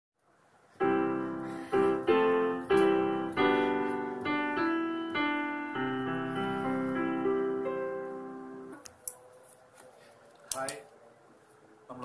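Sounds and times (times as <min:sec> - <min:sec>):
digital piano melody: 0:00.7 - 0:08.8.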